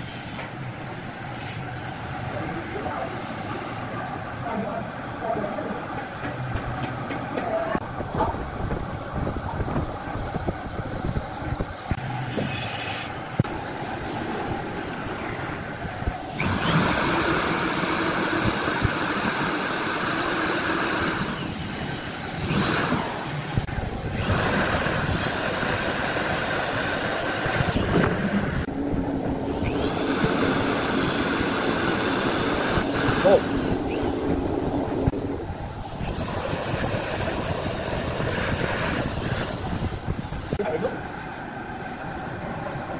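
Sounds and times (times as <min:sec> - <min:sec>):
electric drill boring into wood: 0:16.3 - 0:21.6, 0:24.1 - 0:28.6, 0:29.6 - 0:33.8, 0:36.0 - 0:40.1.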